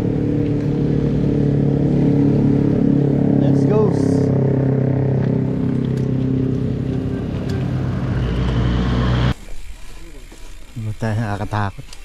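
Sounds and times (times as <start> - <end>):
vehicle engine running: 0.0 - 9.4.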